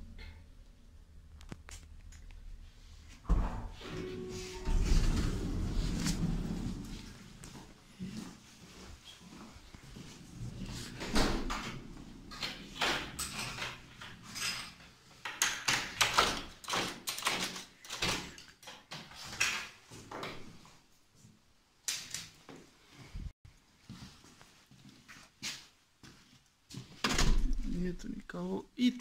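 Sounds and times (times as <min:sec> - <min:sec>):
rustling: 0:04.3 - 0:12.8.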